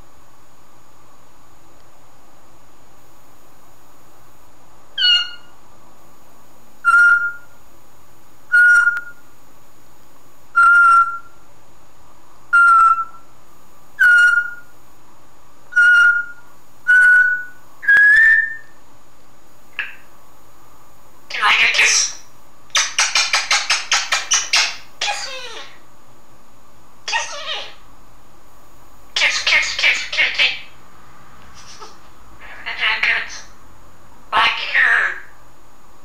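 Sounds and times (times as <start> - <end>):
parrot whistling: 5.0 - 5.5, 6.8 - 7.5, 8.5 - 9.2, 10.6 - 11.4, 12.5 - 13.2, 14.0 - 14.7, 15.7 - 18.7, 21.4 - 25.8.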